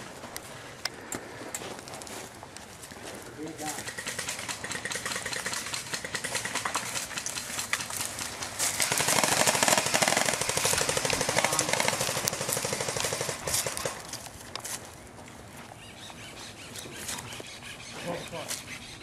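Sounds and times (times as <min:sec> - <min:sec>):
airsoft rifle automatic fire: 0:03.8 - 0:07.2, 0:08.7 - 0:14.0.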